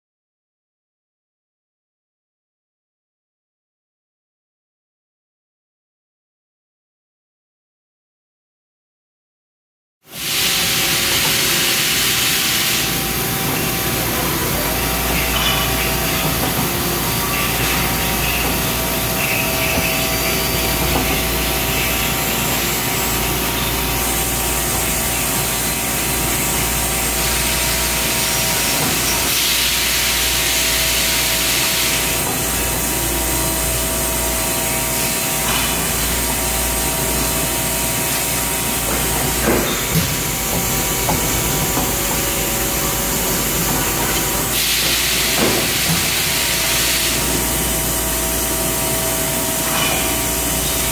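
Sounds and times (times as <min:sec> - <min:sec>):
loud hiss: 0:10.1 - 0:16.2, 0:16.9 - 0:32.9, 0:42.5 - 0:50.8
lathe machine hum: 0:10.2 - 0:50.9.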